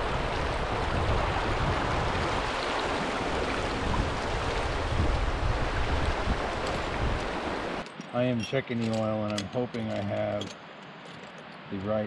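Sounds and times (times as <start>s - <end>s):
river rushing over rocks: 0.0s - 8.4s.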